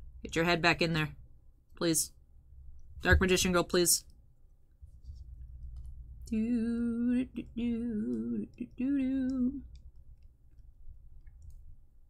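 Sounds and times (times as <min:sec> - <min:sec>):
woman singing wordless tune: 0:06.3 - 0:09.8.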